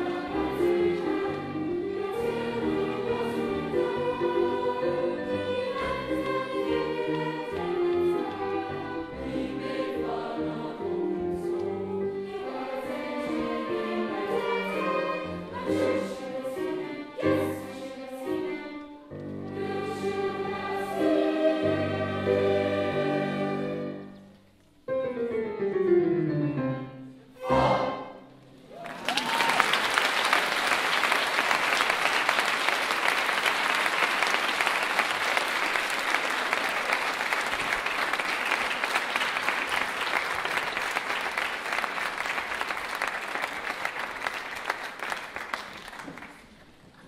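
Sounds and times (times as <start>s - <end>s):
choir and orchestra: 0.0s - 29.8s
audience applauding: 28.7s - 46.8s.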